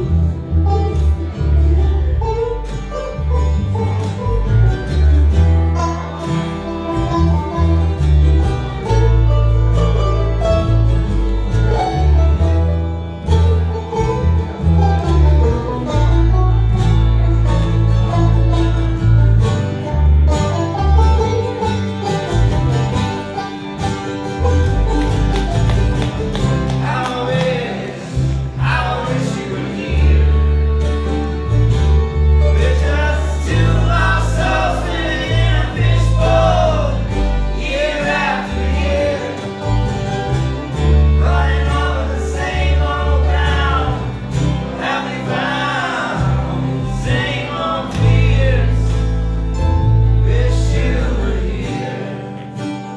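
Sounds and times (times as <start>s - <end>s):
bluegrass band playing: 0.0s - 52.9s
voices singing: 26.3s - 52.9s.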